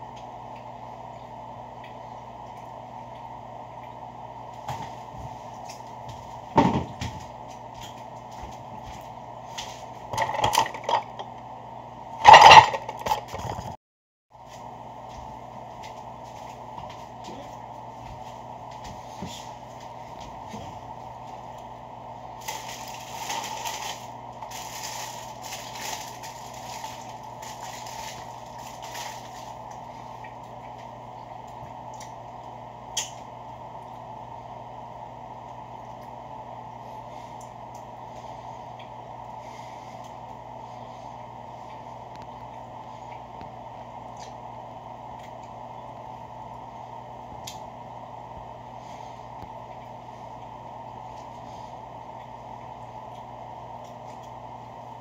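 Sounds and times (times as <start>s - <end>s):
steady background hum: 0.0s - 55.0s
paper wrapper crinkling: 22.4s - 29.7s
man chewing food: 26.2s - 34.1s, 36.9s - 45.6s, 49.0s - 54.4s.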